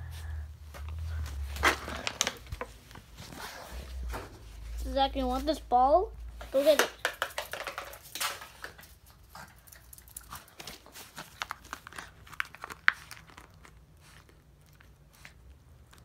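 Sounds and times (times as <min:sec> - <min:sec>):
dog chewing plastic toy ball: 0:06.8 - 0:08.8.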